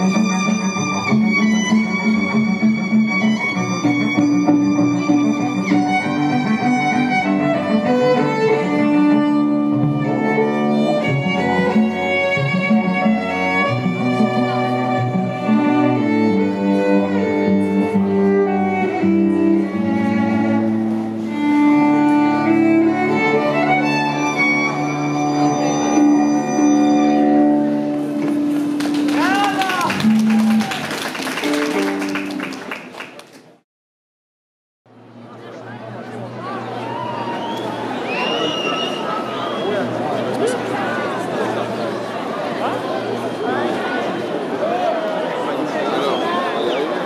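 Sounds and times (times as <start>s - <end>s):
cello playing: 0.0s - 29.0s
violin melody: 0.0s - 30.6s.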